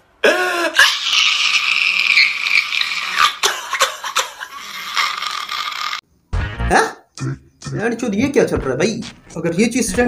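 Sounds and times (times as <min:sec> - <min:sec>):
man crying and wailing: 0:00.2 - 0:02.1.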